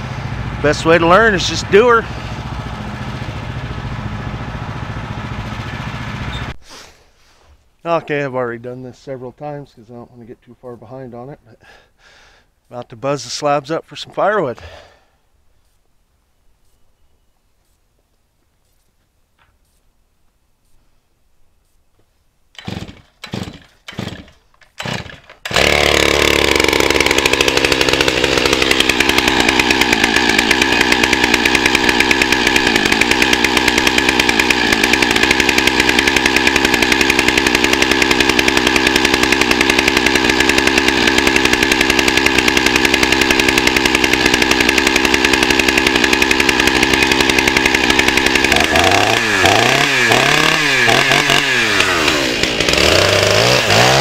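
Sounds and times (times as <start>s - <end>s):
chainsaw engine running and revving: 0.0s - 6.5s, 22.6s - 54.0s
chainsaw starter cord tugs: 22.5s - 54.0s.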